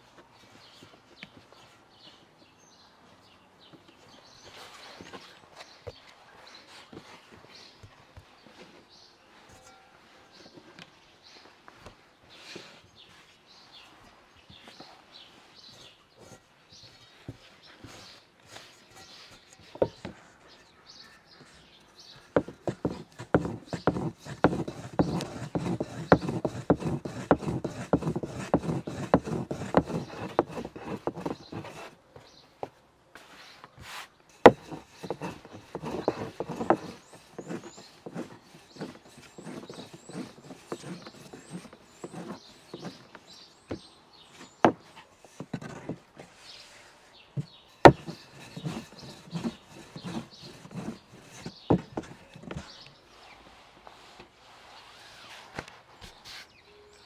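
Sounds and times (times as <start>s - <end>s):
dough knocking on wooden board: 22.4s - 31.4s, 34.5s - 41.0s, 47.8s - 48.8s.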